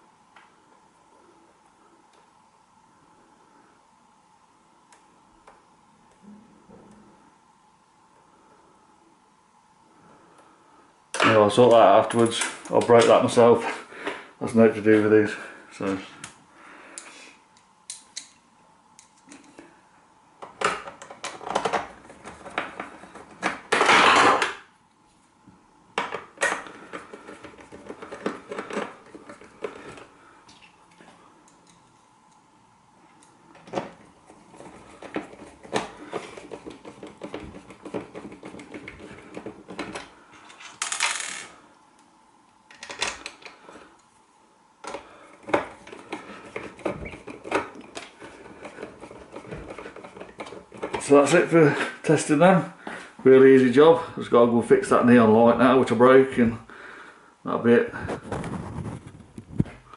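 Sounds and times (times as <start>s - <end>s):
scraping rustle: 58.0s - 59.9s.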